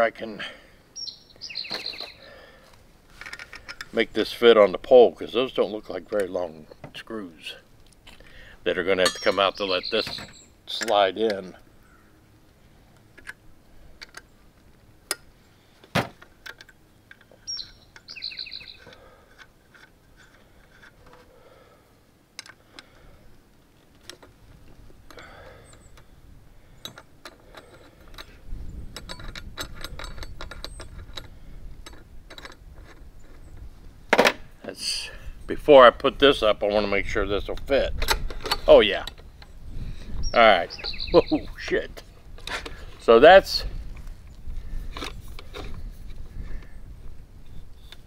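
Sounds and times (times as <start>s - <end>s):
bird call: 1.0s - 2.4s, 9.2s - 10.5s, 17.4s - 19.2s, 40.2s - 41.6s
metal and plastic clicks: 26.8s - 33.4s.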